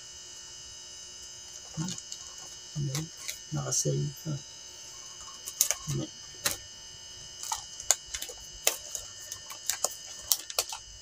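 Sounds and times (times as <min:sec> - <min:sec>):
plastic seal crinkling: 0:05.2 - 0:06.6, 0:07.4 - 0:10.9
scissors snipping plastic: 0:05.3 - 0:06.6, 0:07.4 - 0:10.9.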